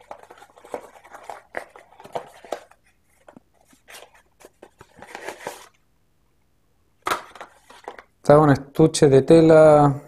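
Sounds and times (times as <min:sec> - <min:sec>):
cardboard being handled: 0:00.0 - 0:05.8.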